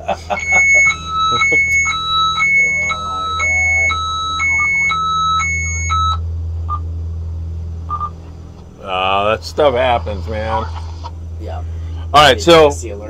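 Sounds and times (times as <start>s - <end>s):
steady low hum: 0.0s - 13.0s
two-tone electronic alarm beeping: 0.2s - 6.8s, 7.9s - 8.2s.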